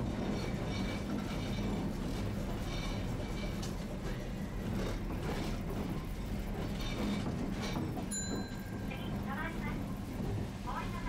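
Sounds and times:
streetcar machinery hum: 0.0s - 11.0s
wheels rumbling on track: 0.0s - 11.0s.

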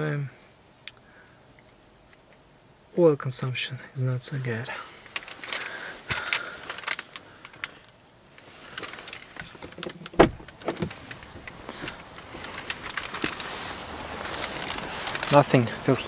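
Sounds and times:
clicks and rustling in car: 5.1s - 16.0s.

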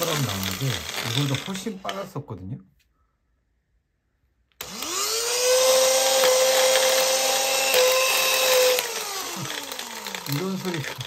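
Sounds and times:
hair dryer motor and fan whining: 0.0s - 2.1s, 4.6s - 11.0s.

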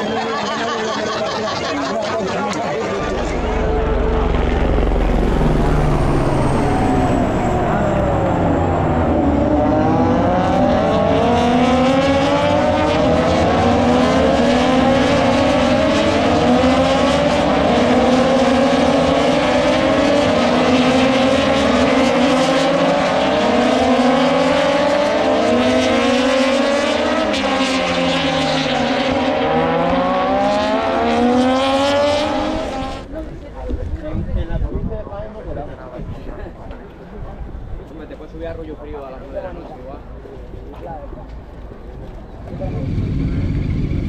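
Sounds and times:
racing motorcycles accelerating: 2.0s - 33.1s, 42.0s - 44.0s.

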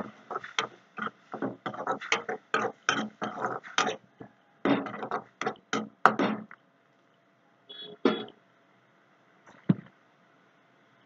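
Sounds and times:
metal spoon scraping a metal pan: 0.0s - 4.0s.

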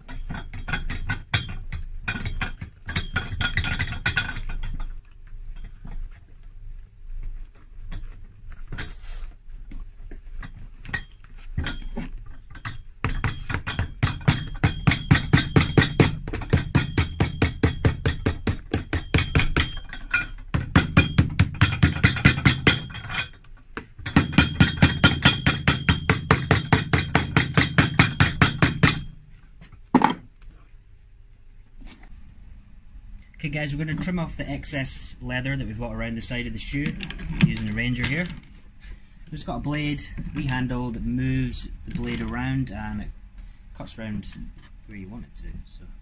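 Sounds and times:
hammer beating leather sole: 13.0s - 23.1s, 23.8s - 29.1s.

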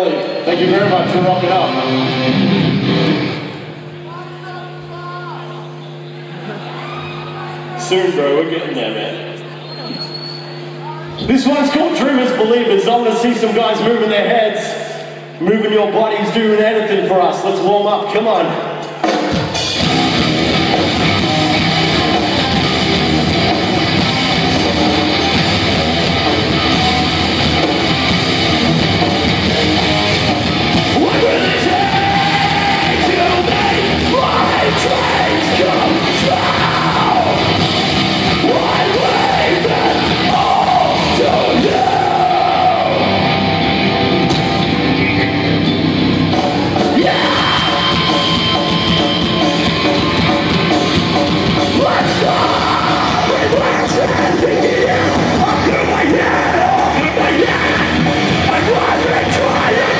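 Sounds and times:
distorted electric guitars: 0.0s - 16.4s, 17.3s - 59.9s
drum kit: 18.8s - 59.9s
sung and yelled vocals: 20.0s - 43.8s, 46.5s - 50.4s, 51.4s - 59.9s.

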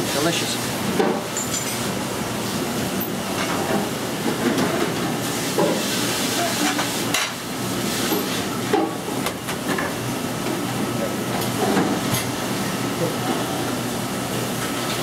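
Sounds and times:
pasta sizzling in a pan: 5.2s - 8.4s.

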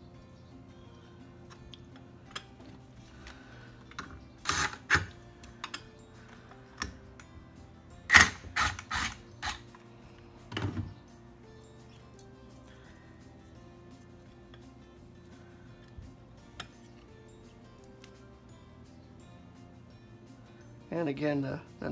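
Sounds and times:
quiet background music: 0.0s - 21.9s
cordless power driver: 4.4s - 5.1s, 8.1s - 9.6s.

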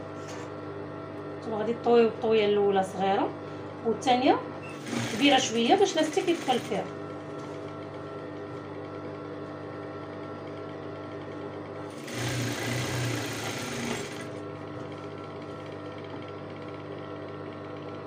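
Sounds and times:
sewing machine stitching: 4.6s - 7.0s, 11.9s - 15.5s
sewing machine humming: 4.6s - 18.0s.

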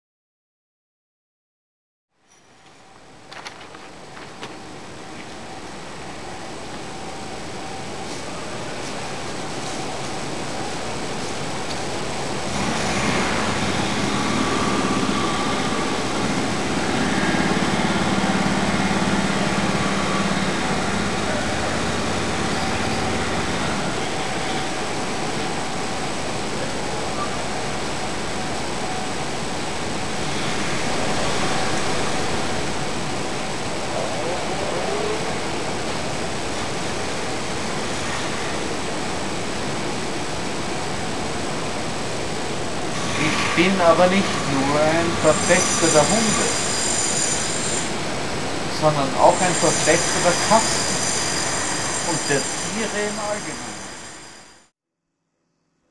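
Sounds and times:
engine drone: 2.6s - 54.7s
steady rushing noise: 2.8s - 54.7s.

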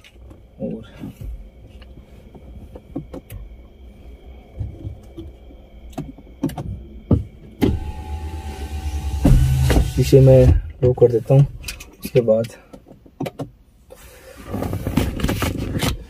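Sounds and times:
faint low rumble: 0.0s - 12.3s
engine rumble and hum: 0.0s - 16.0s.

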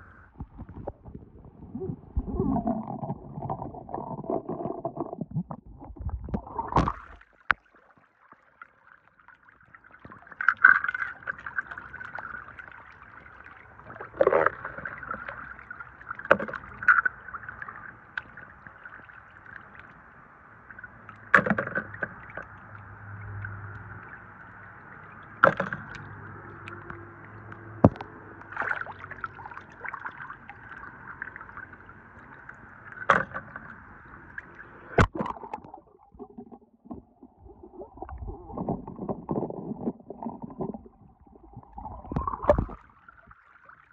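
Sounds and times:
water splashing and sloshing: 0.0s - 43.9s
toys dropped into water: 6.2s - 7.6s, 21.2s - 22.2s, 25.4s - 29.2s, 35.0s - 36.4s, 42.0s - 42.8s.

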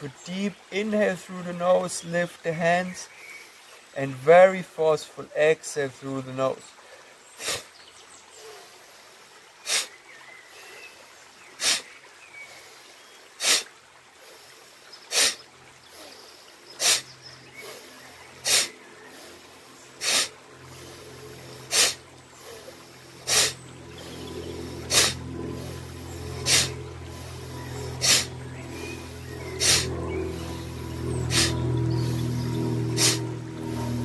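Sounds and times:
forceful breath out through nose: 11.6s - 11.9s, 13.4s - 16.2s, 16.8s - 17.0s, 17.6s - 19.4s, 20.0s - 23.6s, 24.7s - 28.3s.

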